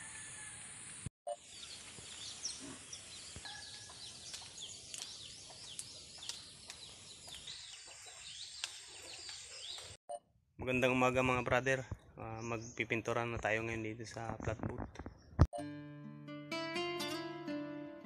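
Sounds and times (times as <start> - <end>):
small birds chirping: 1.3 - 10.0.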